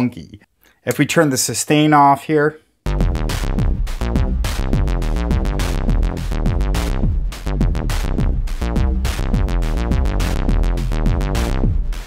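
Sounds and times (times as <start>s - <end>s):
drum machine hits: 2.9s - 12.0s
synthesizer bass line: 2.9s - 12.0s.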